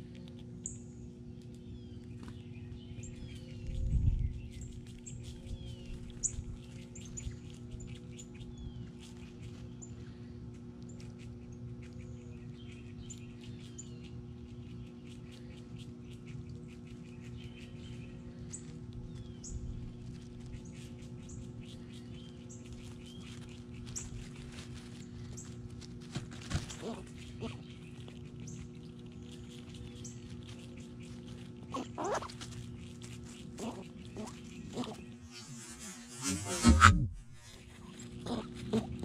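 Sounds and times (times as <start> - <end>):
small birds chirping: 0.0 - 39.0
steady low hum: 0.0 - 39.0.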